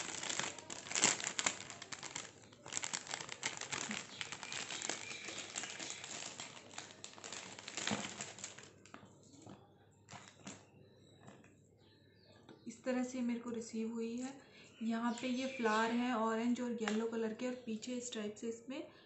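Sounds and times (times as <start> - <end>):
plastic wrapping crinkling: 0.0 - 9.5, 10.1 - 10.7.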